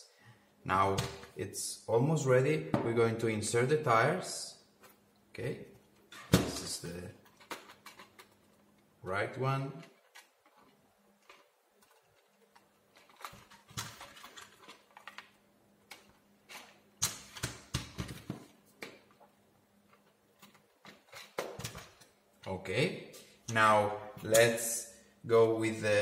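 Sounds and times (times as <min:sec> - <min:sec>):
plastic parts clicking and scraping: 0:06.9 - 0:08.9, 0:09.8 - 0:22.2.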